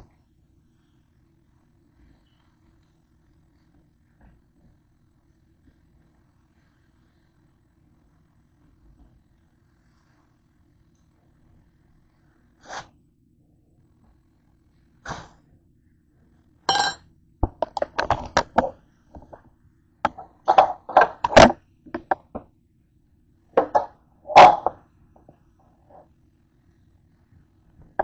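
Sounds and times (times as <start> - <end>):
knocks and clatters on counter: 16.7 - 19.4, 20.1 - 22.5, 23.6 - 25.4.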